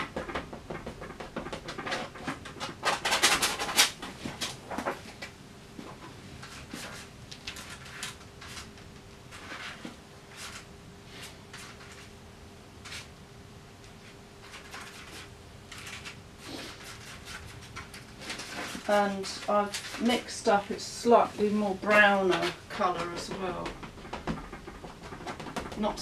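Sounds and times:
faint steady hum: 0.0s - 26.0s
palette knife scraping paint: 21.4s - 26.0s.

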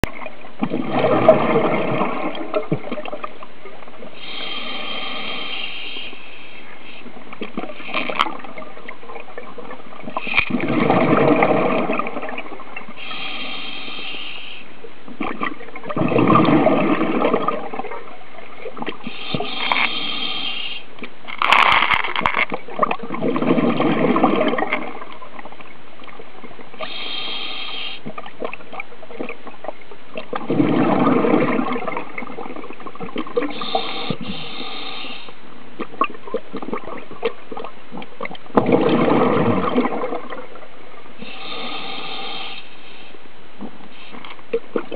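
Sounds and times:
exhaled bubbles: 0.0s - 14.1s, 15.1s - 42.6s, 43.6s - 44.9s
steady background hiss: 1.6s - 15.9s, 16.8s - 22.7s, 24.9s - 30.4s, 31.4s - 38.6s, 40.0s - 44.9s
regulator inhalation hiss: 4.2s - 7.1s, 13.0s - 14.7s, 19.1s - 20.9s, 26.8s - 28.1s, 33.5s - 35.4s, 41.2s - 43.2s.

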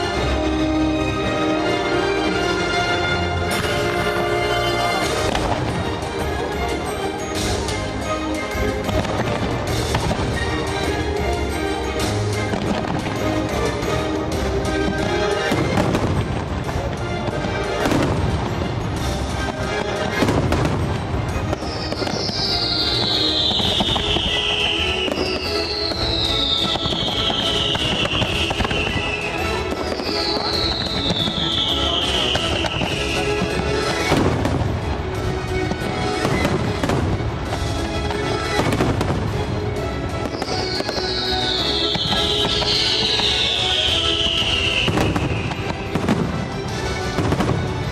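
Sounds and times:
background music: 0.0s - 47.9s
firework bangs: 3.5s - 11.1s, 11.7s - 47.9s
falling firework whistle: 21.5s - 34.5s, 40.2s - 46.3s.

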